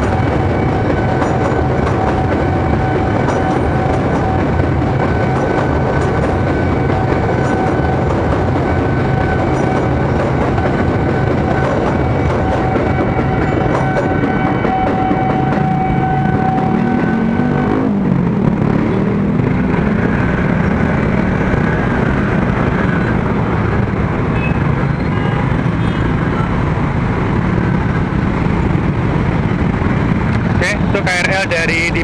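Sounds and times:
level-crossing alarm ringing: 0.0s - 17.0s
motorcycle and car engines revving: 0.0s - 25.0s
busy traffic: 0.0s - 32.0s
electric train passing: 0.0s - 32.0s.

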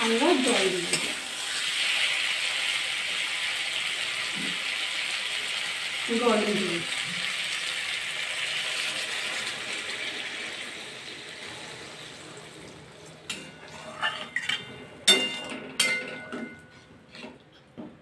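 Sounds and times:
water hissing in hot pan: 0.0s - 12.8s
metal spatula scraping a pan: 13.3s - 17.4s.

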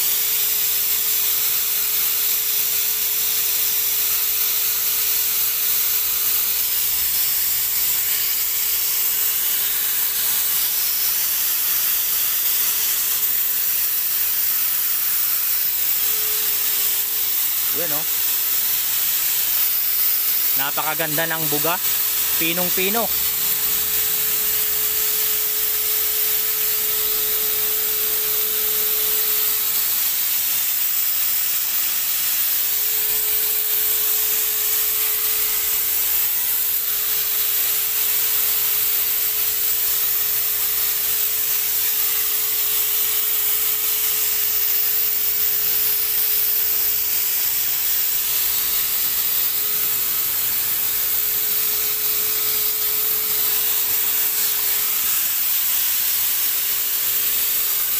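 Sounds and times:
paint sprayer air rush: 0.0s - 57.9s
motor whine: 14.9s - 18.2s, 20.6s - 29.7s.

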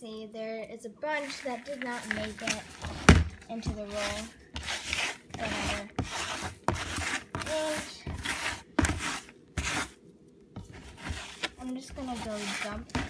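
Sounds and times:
litter rustling in plastic box: 1.2s - 4.2s.

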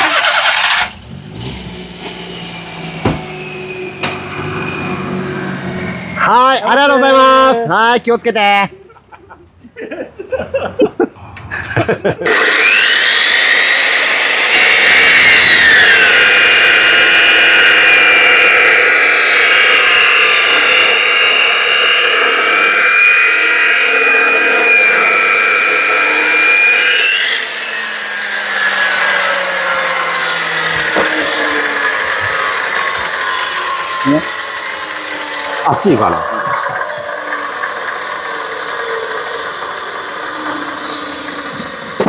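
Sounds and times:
chop saw cutting metal: 0.0s - 7.3s, 11.6s - 42.0s.

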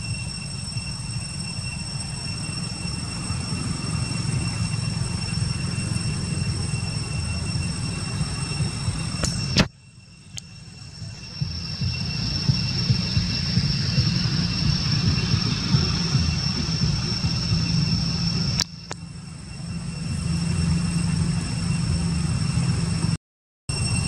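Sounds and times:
low rumble: 0.0s - 24.0s
thin high whine: 0.0s - 24.0s.

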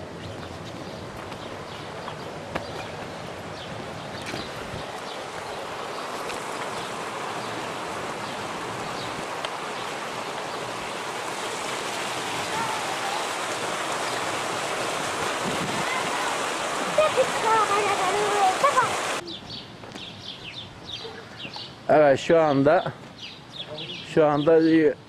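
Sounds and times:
running water: 0.0s - 19.2s.

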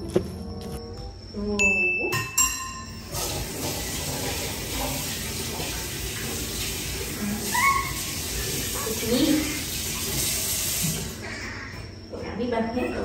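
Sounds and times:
tap water running into sink: 3.1s - 11.2s.

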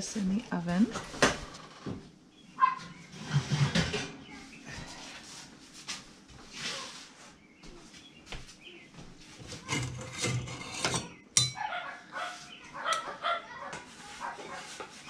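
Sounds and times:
kitchenware clattering: 9.5s - 11.6s.

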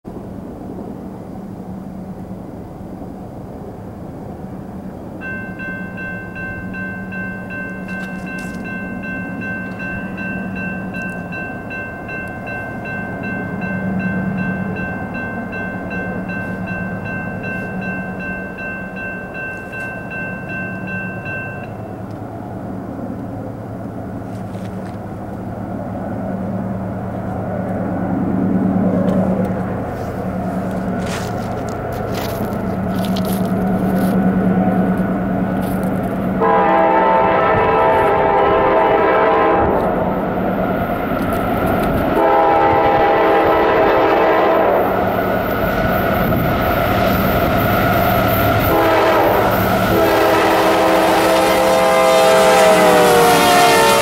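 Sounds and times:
diesel locomotive rumble: 0.1s - 54.0s
high multi-tone ringing: 5.2s - 22.0s.

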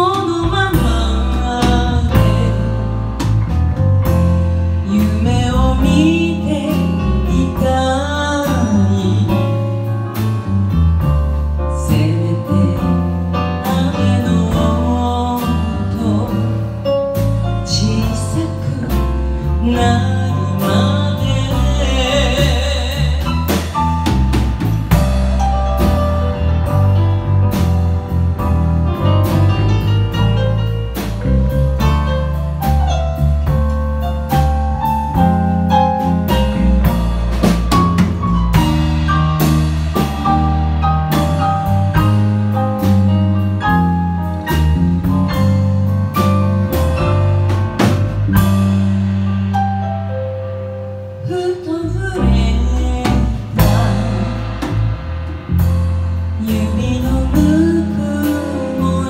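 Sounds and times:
woman singing: 0.0s - 2.8s, 4.8s - 9.7s, 11.7s - 16.7s, 17.6s - 23.8s, 51.2s - 54.7s, 56.4s - 59.0s
drum kit: 0.0s - 59.0s
electric bass: 0.0s - 59.0s.

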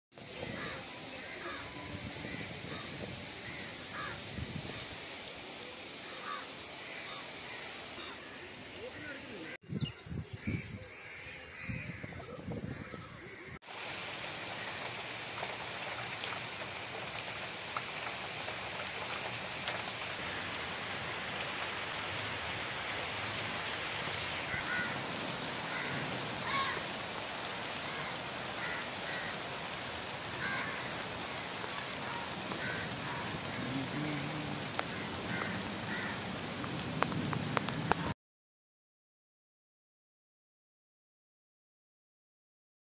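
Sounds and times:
rain falling on trees: 0.1s - 9.6s, 13.6s - 38.2s.

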